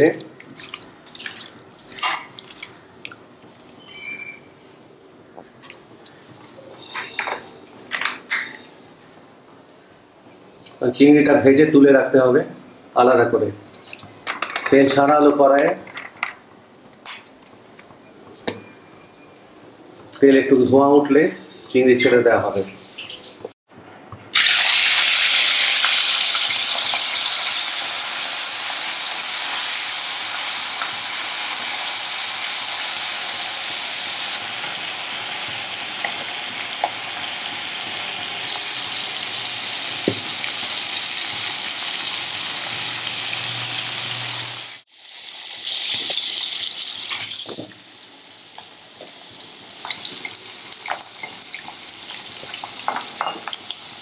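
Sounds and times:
prawns sizzling in hot oil: 24.3s - 54.0s.

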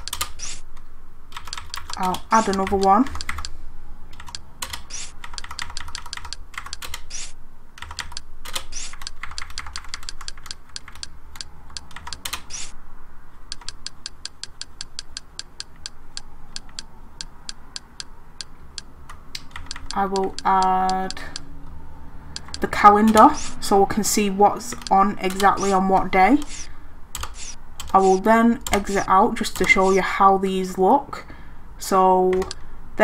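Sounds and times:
computer keyboard key clicks: 1.4s - 3.5s, 4.2s - 12.7s, 13.5s - 21.5s, 22.4s - 23.5s, 27.2s - 29.0s, 32.3s - 32.6s.

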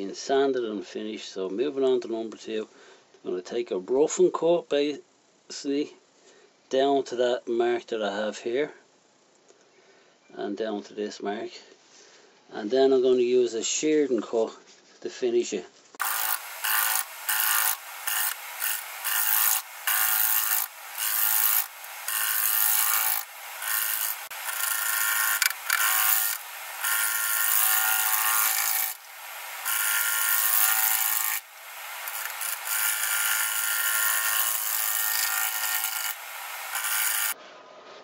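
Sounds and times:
gouge scraping wood on lathe: 16.0s - 37.4s.

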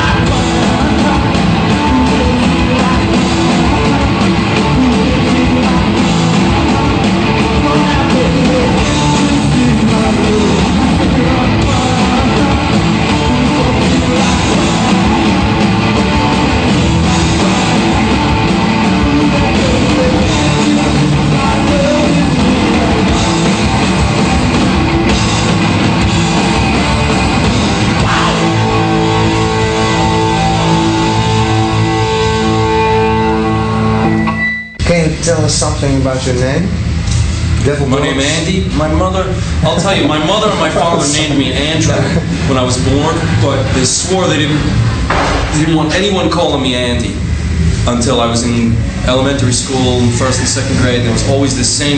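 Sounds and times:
man singing: 0.0s - 16.3s, 17.0s - 23.5s
rock band playing loud: 0.0s - 51.9s.

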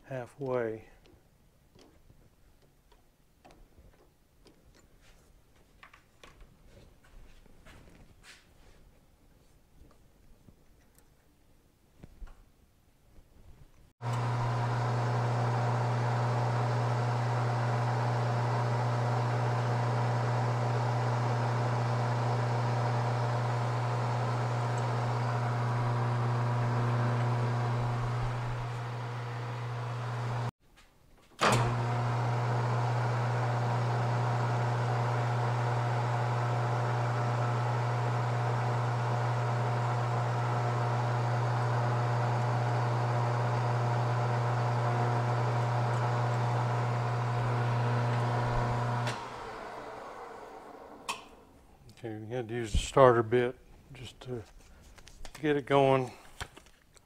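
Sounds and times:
lathe motor hum: 14.0s - 30.5s, 31.4s - 51.3s.

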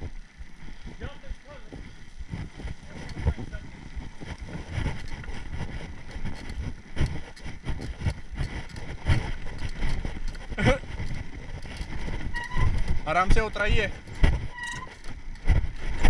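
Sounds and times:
bike rattling and knocking: 0.0s - 16.0s
wind rumbling on microphone: 0.0s - 16.0s
rising squeak: 12.3s - 12.9s, 14.4s - 15.1s.

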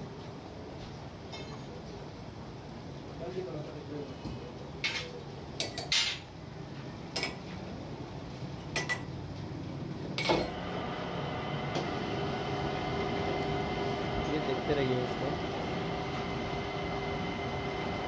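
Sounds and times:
metal-on-metal clanks: 10.2s - 10.6s
lathe running with steady hum: 10.3s - 18.0s.

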